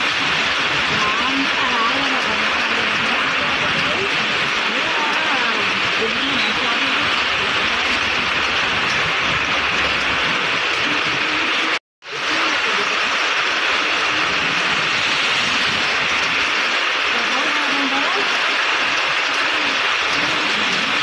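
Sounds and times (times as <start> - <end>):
car tyres swishing on wet road: 0.0 - 21.0
heavy rain hissing: 0.0 - 21.0.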